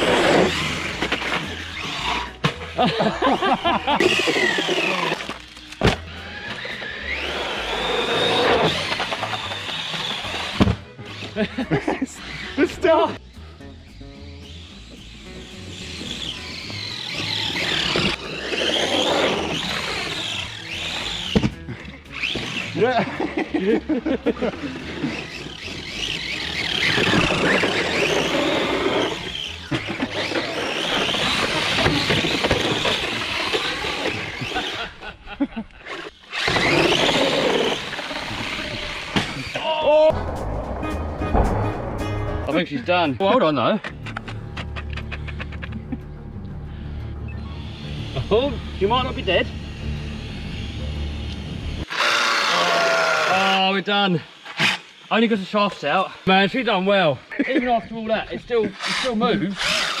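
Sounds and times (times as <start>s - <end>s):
tyre and drivetrain noise: 0.0s - 35.2s, 35.8s - 41.6s
electric toy truck motor whining: 0.0s - 39.6s, 47.0s - 56.9s, 58.7s - 60.0s.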